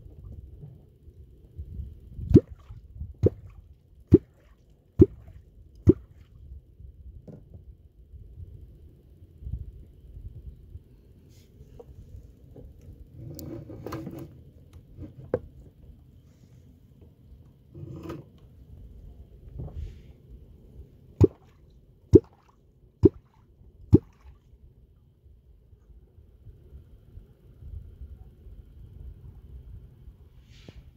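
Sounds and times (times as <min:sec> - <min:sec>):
hollow plops in water: 0:02.3 - 0:06.3, 0:21.2 - 0:24.4.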